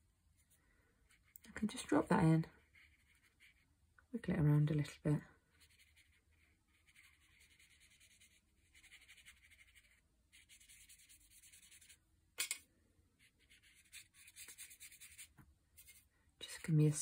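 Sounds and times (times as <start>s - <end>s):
paintbrush swishing on paper: 5.6s - 12.0s, 13.2s - 16.1s.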